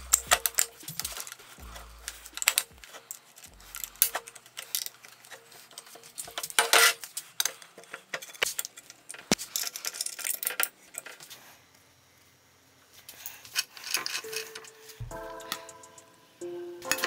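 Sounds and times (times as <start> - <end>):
metal clinks and knocks: 0.0 - 6.9.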